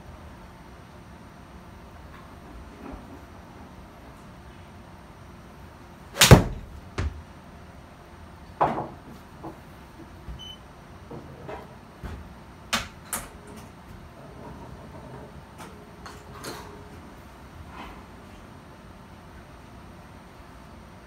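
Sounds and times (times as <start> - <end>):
golf club striking ball: 6.2 - 7.1.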